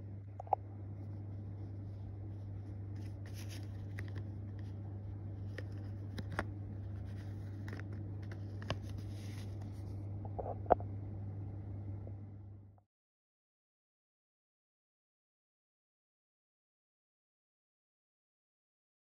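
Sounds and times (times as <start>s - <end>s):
steady low hum: 0.0s - 12.8s.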